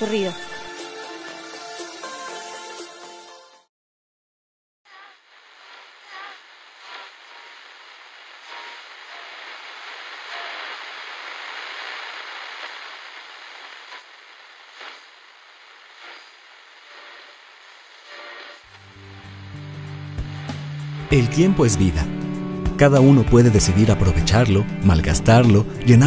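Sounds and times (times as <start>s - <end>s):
radio static hissing: 4.9s - 26.0s
radio clicks: 6.8s - 18.9s
brief radio tones: 8.4s - 14.1s.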